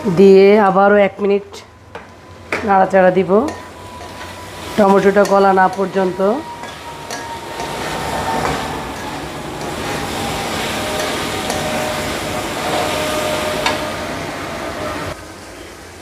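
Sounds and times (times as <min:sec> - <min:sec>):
vegetables sizzling in a wok: 0:02.7 - 0:16.0
spatula stirring and scraping: 0:03.5 - 0:13.8.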